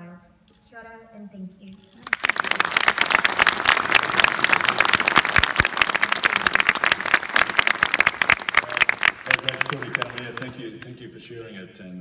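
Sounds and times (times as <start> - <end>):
audience applauding: 2.0 - 11.0.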